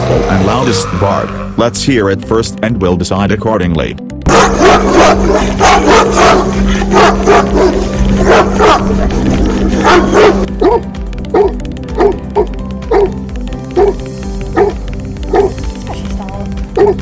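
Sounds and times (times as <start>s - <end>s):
loud deep dog barks: 4.3s - 10.8s.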